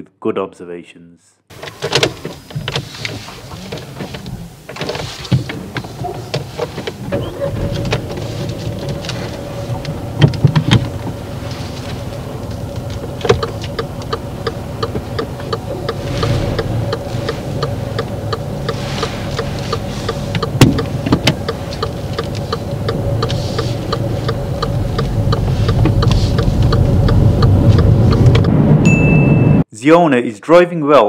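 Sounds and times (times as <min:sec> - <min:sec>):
car engine and road noise: 0:01.5 - 0:29.7
car turn indicator ticking: 0:12.0 - 0:28.6.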